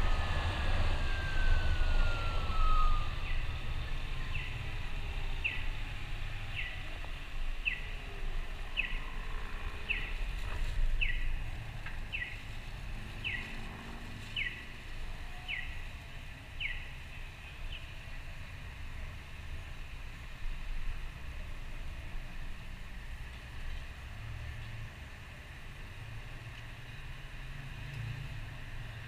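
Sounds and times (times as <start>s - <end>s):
crossing signal chirping: 0.0s - 4.7s
low rumble of street traffic: 0.0s - 29.0s.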